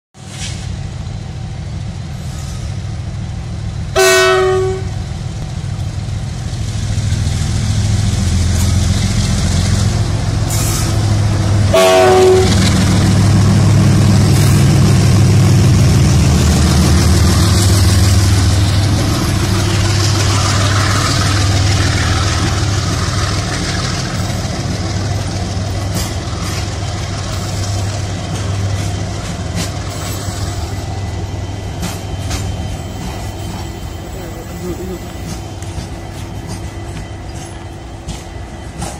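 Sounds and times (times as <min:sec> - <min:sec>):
diesel locomotive engine rumble: 0:00.2 - 0:38.9
train horn blasts: 0:04.0 - 0:05.0, 0:11.7 - 0:12.8.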